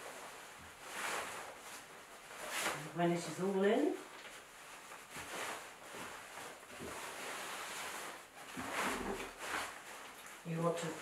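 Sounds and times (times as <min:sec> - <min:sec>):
fabric rustling: 0:00.0 - 0:11.0.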